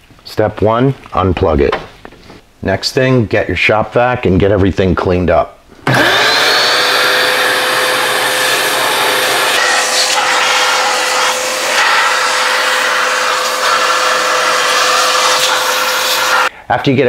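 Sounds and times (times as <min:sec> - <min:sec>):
shop vacuum running: 0:05.8 - 0:16.5
nozzle sucking sawdust: 0:05.9 - 0:16.5.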